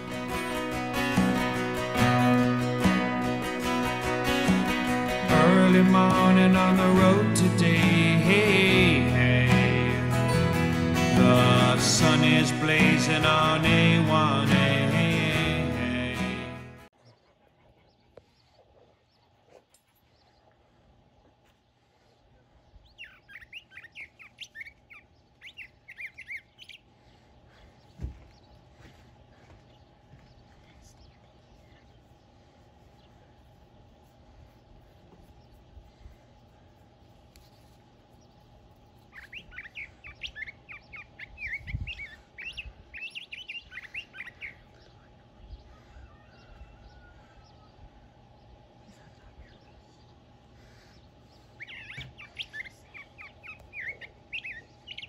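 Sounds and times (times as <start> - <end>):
songbird singing: 16.9 - 55.0.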